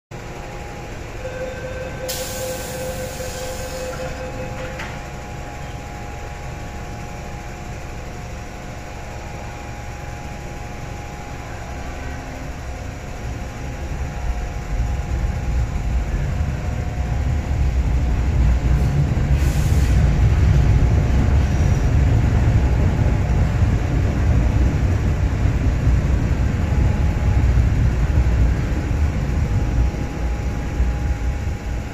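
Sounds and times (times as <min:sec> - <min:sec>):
train motors and wheels rumbling: 0:00.1 - 0:31.9
train air hiss: 0:02.0 - 0:04.3, 0:18.7 - 0:20.5.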